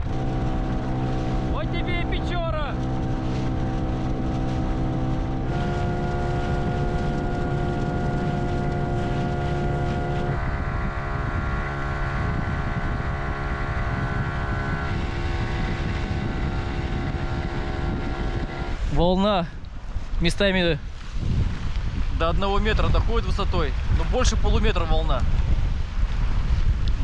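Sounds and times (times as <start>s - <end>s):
outboard motor running: 0.0s - 19.8s
wind buffeting microphone: 0.0s - 27.0s.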